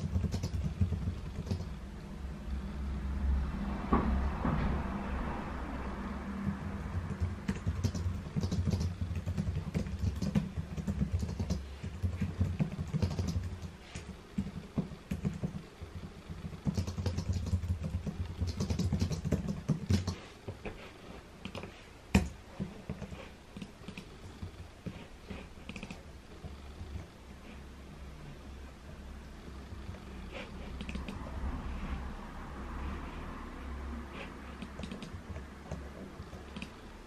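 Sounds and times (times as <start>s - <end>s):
typing on a keyboard: 0.0s - 1.8s, 6.4s - 20.2s, 21.4s - 24.1s, 25.7s - 26.0s, 30.8s - 31.2s, 34.6s - 36.8s.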